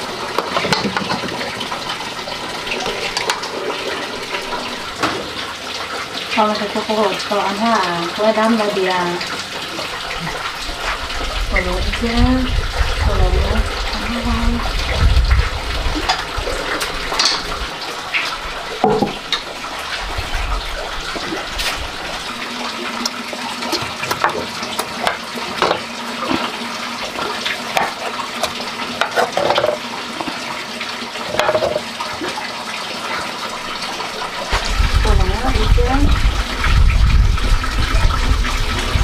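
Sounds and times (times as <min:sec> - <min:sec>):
running water: 0:00.0 - 0:39.0
porcelain bowls clinking: 0:17.2 - 0:17.6
ladle knocking: 0:18.8 - 0:19.4.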